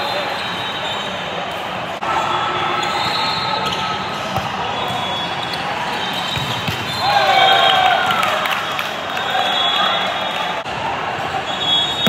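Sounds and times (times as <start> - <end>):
crowd chatter: 0.0 - 12.0
volleyballs struck and bouncing: 6.2 - 7.2.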